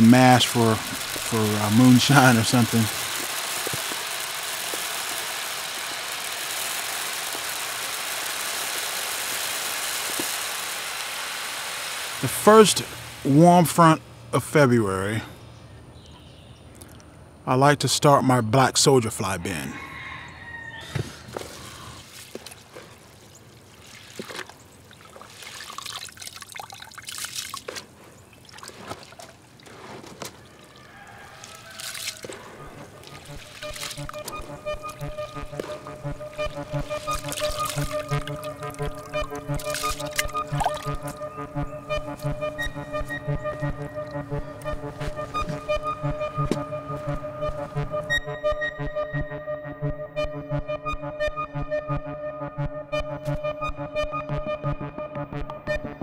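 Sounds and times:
wet grain and water sloshing: 0:21.3 - 0:41.2.

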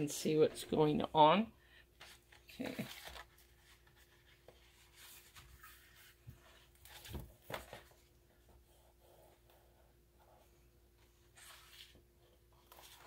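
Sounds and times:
paper rustling: 0:02.0 - 0:08.1, 0:11.3 - 0:13.0.

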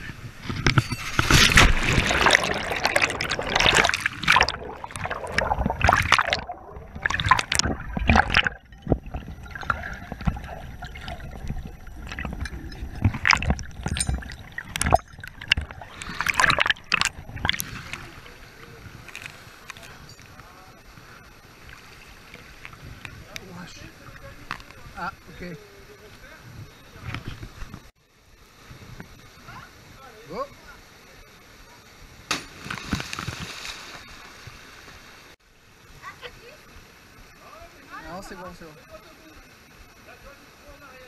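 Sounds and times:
underwater rush and gurgle: 0:00.0 - 0:26.0
camera splashing into water: 0:00.7 - 0:18.1.

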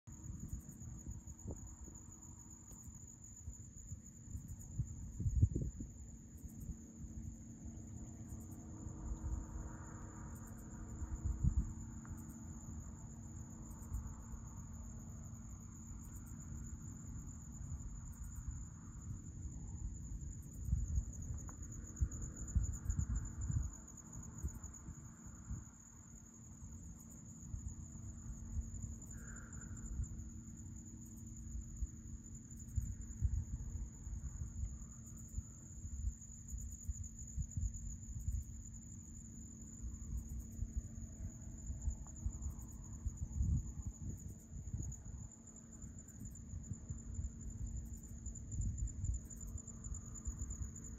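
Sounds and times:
insects trilling: 0:00.1 - 0:50.9
wind buffeting microphone: 0:03.7 - 0:06.1, 0:10.3 - 0:11.9, 0:19.2 - 0:25.8.

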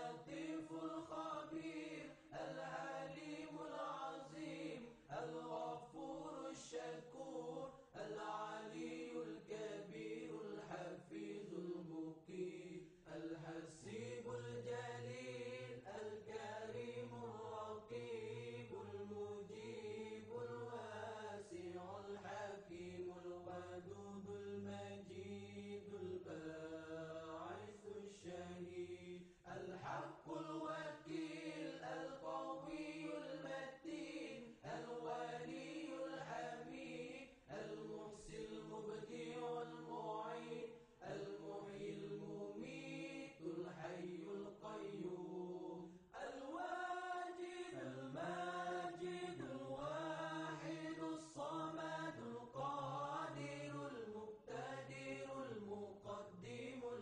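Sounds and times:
chanting voice: 0:00.0 - 0:57.0.

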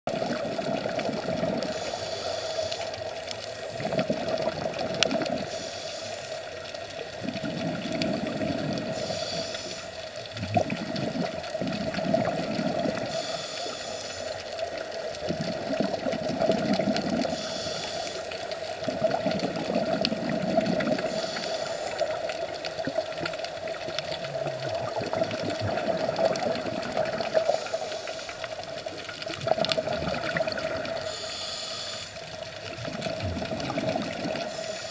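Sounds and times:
underwater water noise: 0:00.1 - 0:34.9
hiss: 0:01.7 - 0:03.7, 0:05.4 - 0:06.6, 0:08.9 - 0:10.3, 0:13.0 - 0:14.8, 0:17.2 - 0:18.8, 0:21.0 - 0:22.6, 0:27.3 - 0:28.6, 0:31.0 - 0:32.4, 0:34.1 - 0:34.9.

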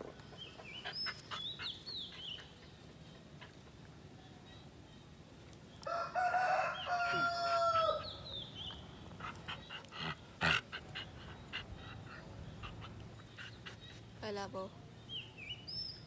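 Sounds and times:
rooster crowing: 0:05.9 - 0:08.1.

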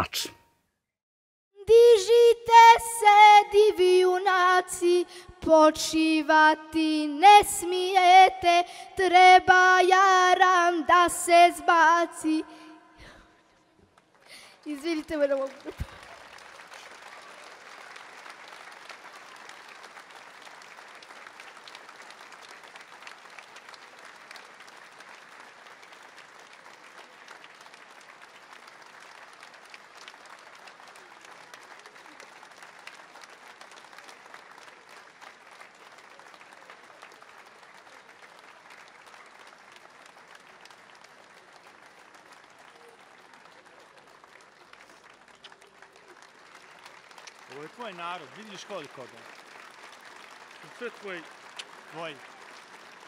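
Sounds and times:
crowd applauding: 0:11.7 - 0:53.0.

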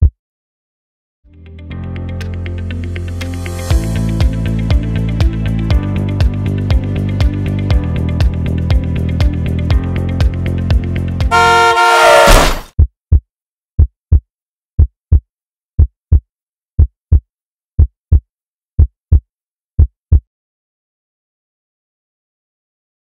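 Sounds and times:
car horn: 0:11.3 - 0:12.6
electronic music: 0:11.3 - 0:12.6
loud burst of noise: 0:11.3 - 0:12.7
heartbeat sound effect: 0:19.8 - 0:20.3.

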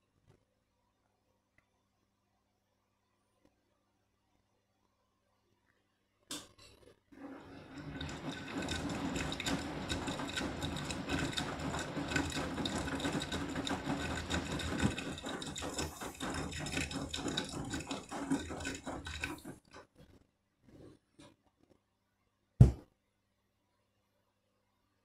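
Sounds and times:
washing machine motor hum: 0:07.2 - 0:19.9
water and suds sloshing: 0:07.6 - 0:19.8.

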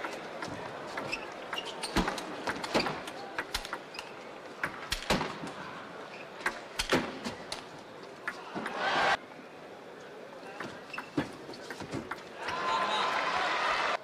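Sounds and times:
large hall background noise: 0:00.0 - 0:14.0.

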